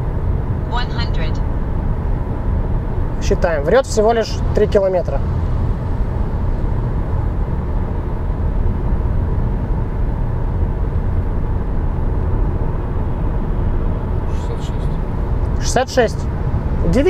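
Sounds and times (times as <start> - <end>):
car engine: 0.0 - 17.0
road and wind noise in car cabin: 0.0 - 17.0.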